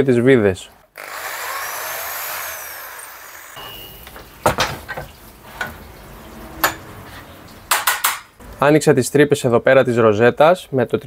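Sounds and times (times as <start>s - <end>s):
electric drill boring metal: 1.0s - 4.0s.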